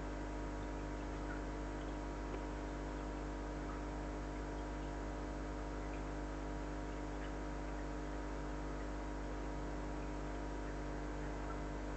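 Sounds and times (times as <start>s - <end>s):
electrical hum: 0.0s - 11.9s
faint ticks: 0.5s - 5.0s, 9.8s - 11.7s.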